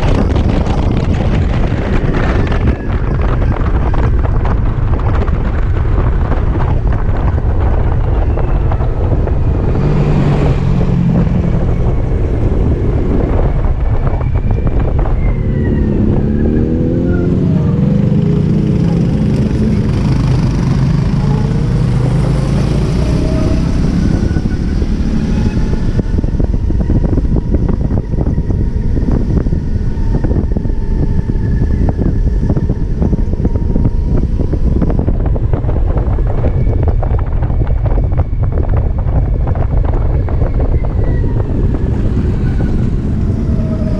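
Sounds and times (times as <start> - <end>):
wind rushing over microphone: 0.0 - 43.9
motorcycle engine revving: 14.7 - 35.2.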